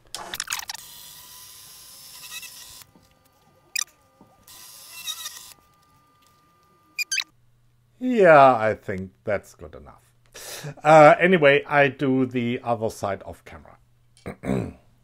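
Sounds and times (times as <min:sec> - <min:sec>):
chattering cutting noise: 0:00.2 - 0:02.9, 0:03.7 - 0:05.6, 0:06.9 - 0:07.3.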